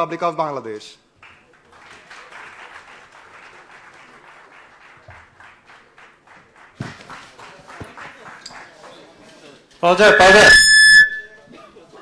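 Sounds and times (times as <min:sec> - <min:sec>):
audience applauding: 0:01.2 - 0:09.0.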